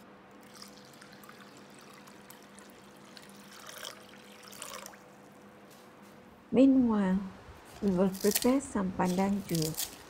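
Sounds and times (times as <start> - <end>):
water trickling into a bowl: 0.4 - 5.1.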